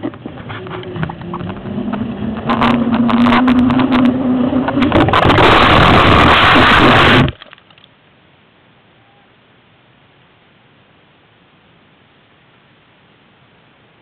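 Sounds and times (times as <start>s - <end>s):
wind rushing over microphone: 0.0s - 7.4s.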